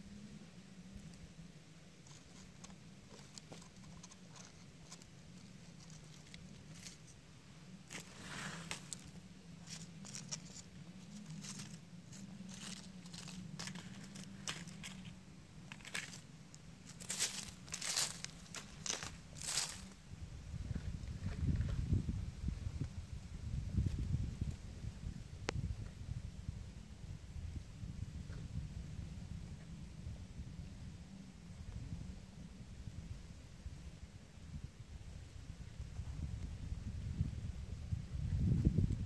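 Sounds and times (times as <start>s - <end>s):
dry leaves crackling and rustling: 3.1s - 7.1s, 7.8s - 20.0s.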